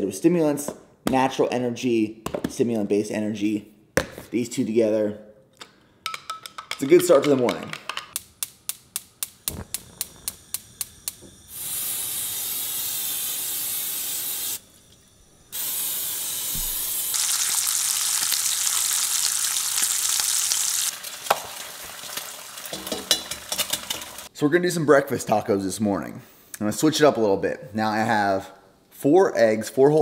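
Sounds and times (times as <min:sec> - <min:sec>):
gas stove igniter clicking: 0:08.2 - 0:11.6
gas burner hissing: 0:08.2 - 0:17.7
cooking spray hissing: 0:08.2 - 0:24.3.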